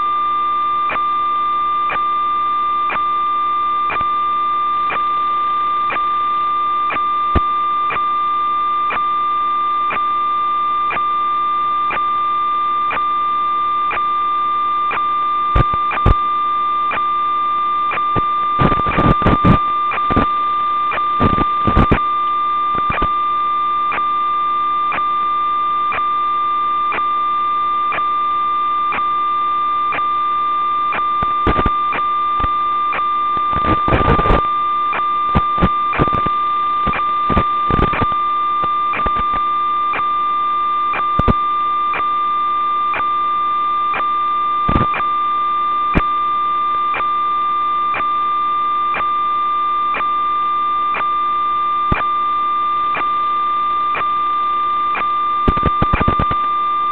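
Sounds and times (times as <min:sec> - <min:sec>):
steady electronic tone with buzz: 0:00.0 - 0:56.9.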